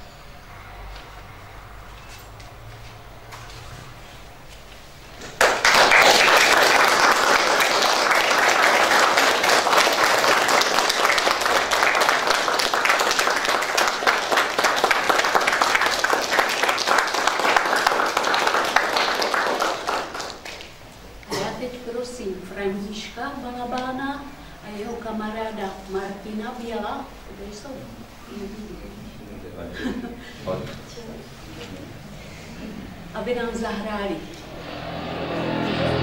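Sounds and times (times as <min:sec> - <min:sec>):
audience applauding: 0:05.2 - 0:20.9, 0:34.6 - 0:36.0.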